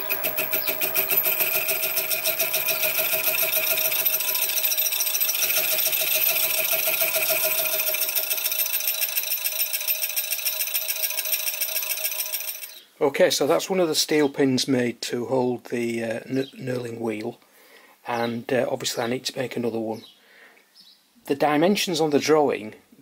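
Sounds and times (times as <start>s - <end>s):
milling machine whine: 0.0s - 10.7s
saw pulsing: 0.0s - 12.8s.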